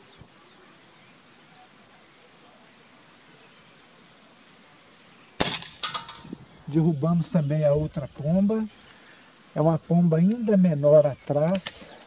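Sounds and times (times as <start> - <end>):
insects chirping: 0.0 - 12.0
air rifle shot: 5.4 - 6.3.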